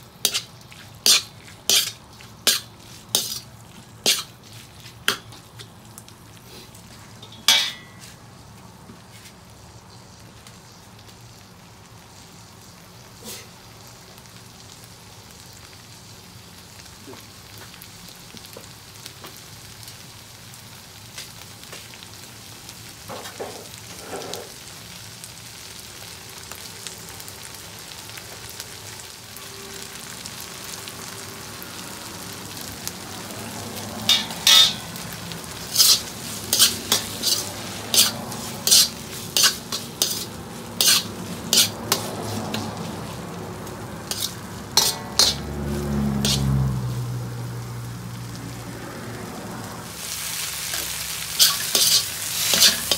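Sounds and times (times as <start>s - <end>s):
food sizzling in a wok: 0.0s - 52.9s
metal spoon scraping wok: 0.2s - 5.5s, 7.2s - 8.2s, 23.2s - 24.5s, 34.1s - 43.2s, 44.0s - 46.7s, 50.0s - 52.9s.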